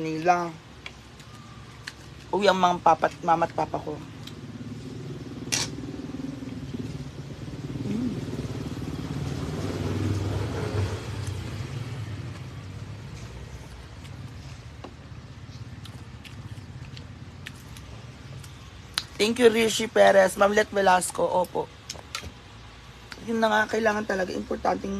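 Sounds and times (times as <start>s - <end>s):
vehicle engine passing by: 3.6s - 19.4s.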